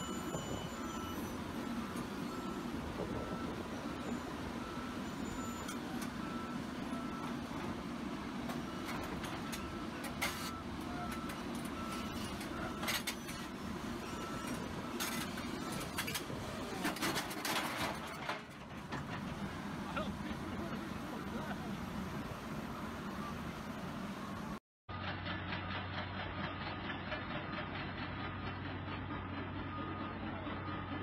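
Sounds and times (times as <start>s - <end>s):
travel alarm beeping: 0.0s - 7.3s, 8.8s - 16.0s
excavator diesel engine: 0.0s - 31.0s.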